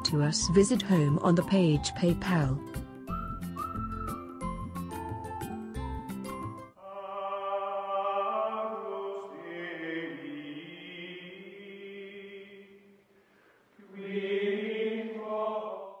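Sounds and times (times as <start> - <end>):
choral chant with held notes: 6.8 - 13.0, 13.8 - 16.0.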